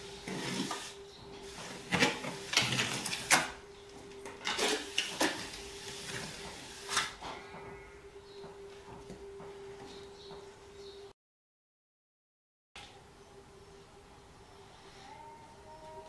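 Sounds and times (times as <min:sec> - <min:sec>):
faint steady hum: 0:12.8 - 0:16.0.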